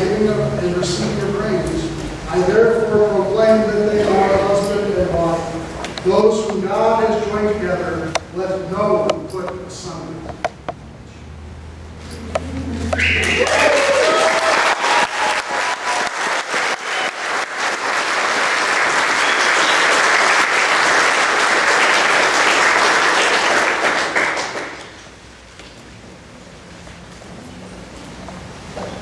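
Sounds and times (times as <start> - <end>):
crowd applauding: 12.9 - 25.2.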